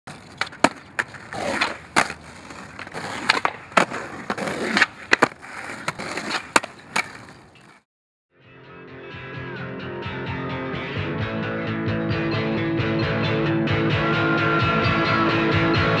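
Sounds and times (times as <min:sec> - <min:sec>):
skateboard clacks: 0:00.1 - 0:07.8
skateboard wheels rolling on concrete: 0:00.1 - 0:07.8.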